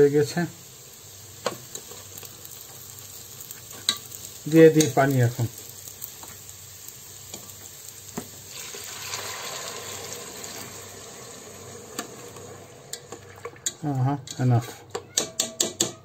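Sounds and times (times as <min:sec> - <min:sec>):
rice sizzling: 0:00.0 - 0:15.0
water pouring into a pot: 0:08.4 - 0:13.9.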